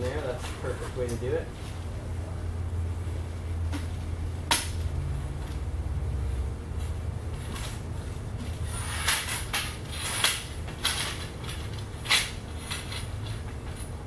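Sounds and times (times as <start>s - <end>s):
low hum: 1.4s - 14.0s.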